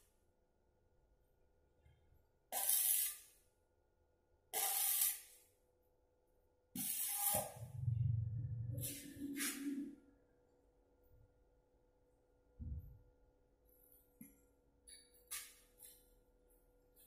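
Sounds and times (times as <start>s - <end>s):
low hum: 7.6s - 10.4s.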